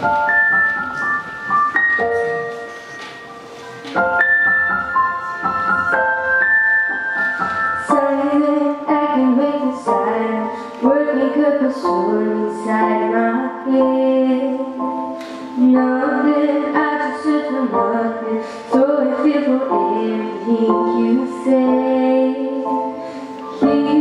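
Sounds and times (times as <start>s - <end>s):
piano accompaniment: 0.0s - 24.0s
girl singing into microphone: 7.8s - 24.0s.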